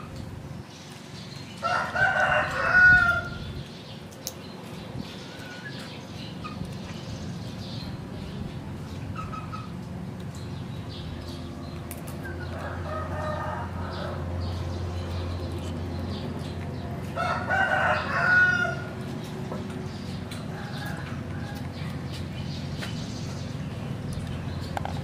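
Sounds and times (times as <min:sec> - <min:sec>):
rooster crowing: 0:01.6 - 0:03.4, 0:12.6 - 0:14.2, 0:17.2 - 0:18.9.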